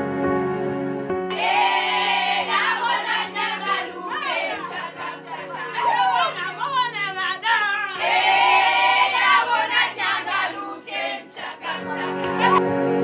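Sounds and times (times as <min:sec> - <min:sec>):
soft slow instrumental music: 0:00.0 - 0:01.4
group of voices singing: 0:01.3 - 0:12.6.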